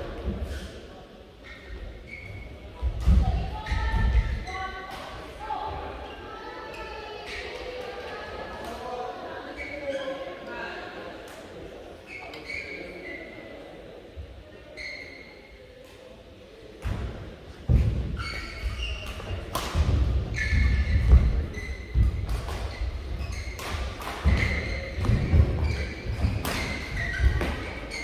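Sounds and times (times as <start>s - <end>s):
shoe squeaks: 1.4s - 2.6s, 3.5s - 4.8s, 9.5s - 10.2s, 12.0s - 13.4s, 14.7s - 15.6s, 18.1s - 19.5s, 20.2s - 28.0s
racket hitting shuttlecock: 19.0s - 27.8s.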